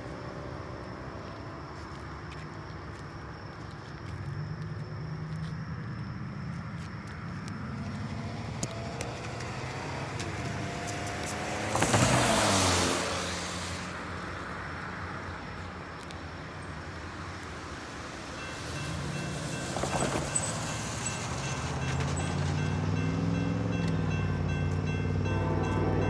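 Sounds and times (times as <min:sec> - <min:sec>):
car tyres hissing on wet road: 0:11.2 - 0:14.0, 0:17.7 - 0:22.5
railroad crossing bell ringing: 0:18.3 - 0:26.0.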